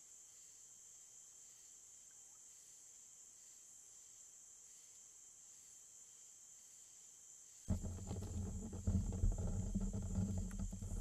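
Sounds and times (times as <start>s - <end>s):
crickets trilling: 0.0s - 11.0s
raccoons scuffling and knocking: 7.7s - 11.0s.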